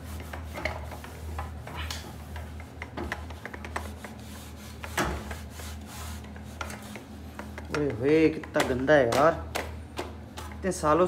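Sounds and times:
cloth wiping ceiling fan: 0.0s - 8.9s.

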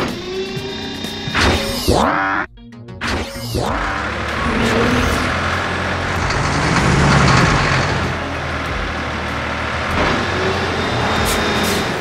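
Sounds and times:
vehicle engine running: 3.6s - 12.0s.

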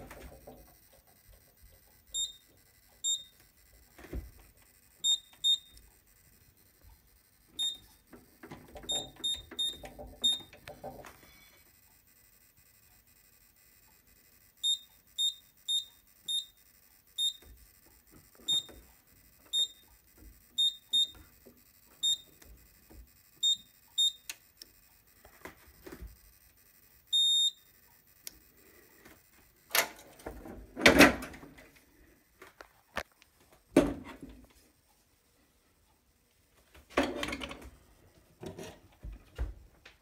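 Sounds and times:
keypad beeping: 0.0s - 28.8s.

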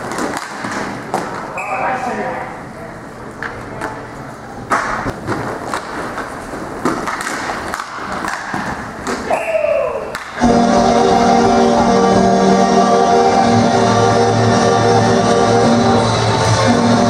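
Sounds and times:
hockey sticks and puck clacking: 0.0s - 1.6s, 4.7s - 10.5s
echoing arena noise: 0.0s - 17.0s
music playing: 10.4s - 17.0s.

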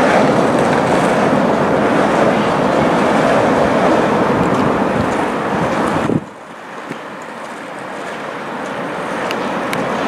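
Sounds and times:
track machine engine and rolling: 0.0s - 10.0s.

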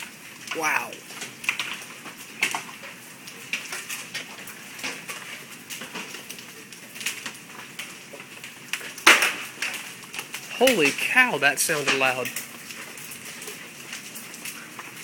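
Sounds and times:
hailstones clacking on surfaces: 0.0s - 15.0s
hiss of falling hail and rain: 0.0s - 15.0s.

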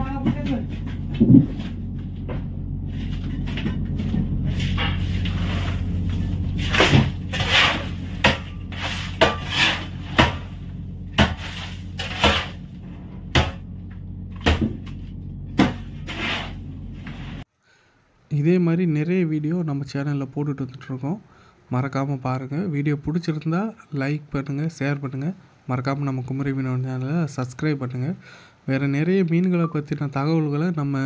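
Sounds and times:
low hum: 0.0s - 17.5s
shovel scraping crushed ice: 6.6s - 10.6s, 11.2s - 12.6s, 15.6s - 17.4s.

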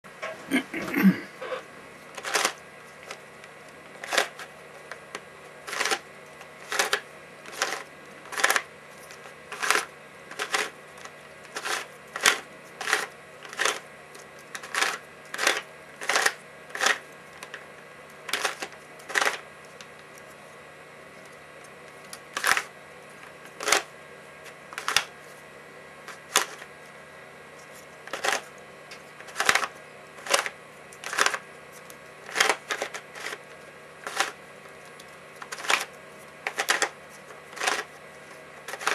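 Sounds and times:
plastic puzzle clicks and clacks: 2.2s - 3.2s, 4.0s - 4.5s, 5.7s - 6.0s, 6.6s - 10.7s, 11.5s - 13.8s, 14.5s - 17.6s, 18.3s - 19.4s, 22.1s - 22.7s, 23.5s - 23.9s, 24.8s - 25.1s, 26.2s - 26.6s, 28.1s - 28.5s, 29.2s - 31.4s, 32.3s - 33.4s, 34.0s - 34.4s, 35.4s - 35.9s, 36.5s - 37.9s, 38.7s - 38.9s.

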